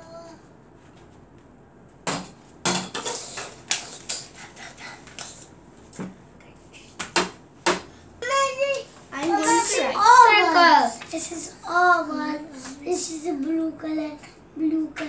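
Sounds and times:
taps and knocks on paper and table: 7.0s - 7.9s.

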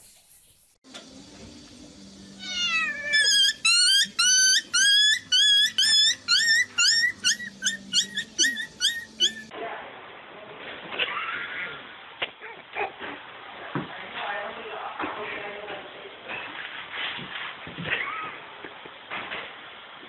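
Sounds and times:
puppy yelping: 2.4s - 9.5s.

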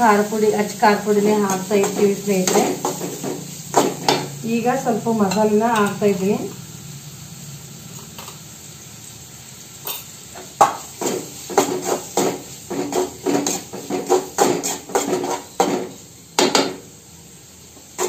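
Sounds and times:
spoon scraping metal pot: 11.0s - 15.8s.

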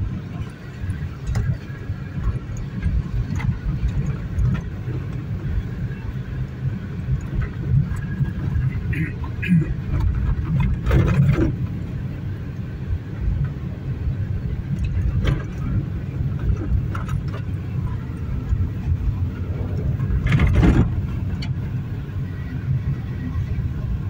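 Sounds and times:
car engine and tyres rumbling: 0.0s - 24.0s
knocks and rattles from bumps: 20.0s - 21.6s.

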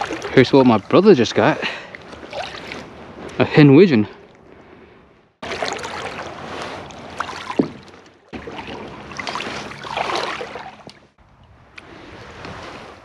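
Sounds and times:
water lapping against kayak: 0.0s - 3.6s, 4.2s - 13.0s
knocks in boat: 7.4s - 8.6s.

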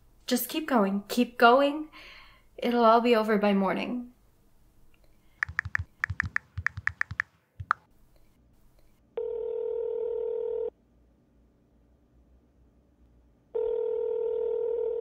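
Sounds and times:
phone ringback tone: 9.2s - 10.7s, 13.6s - 15.0s.

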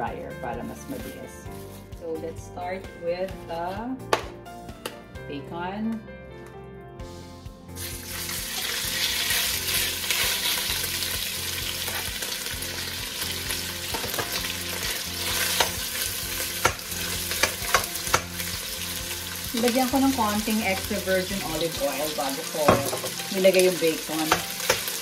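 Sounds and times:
bacon sizzling in hot oil: 7.7s - 25.0s.

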